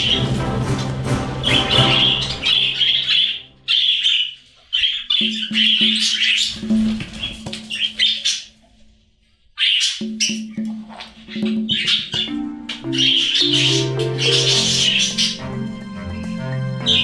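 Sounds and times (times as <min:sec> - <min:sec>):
budgerigars chattering and squawking: 0:00.0 - 0:00.4, 0:01.4 - 0:08.6, 0:09.6 - 0:17.0
soft background music: 0:00.0 - 0:04.3, 0:04.9 - 0:08.3, 0:10.0 - 0:17.0.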